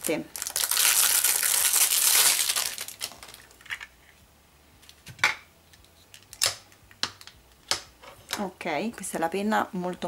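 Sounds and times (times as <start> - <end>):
cellophane crinkling: 0.0 - 3.7.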